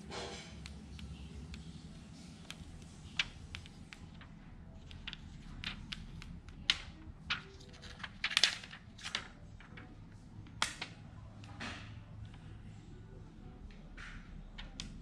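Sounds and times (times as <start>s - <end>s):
plastic film crackling and clicking: 0.6s - 11.6s.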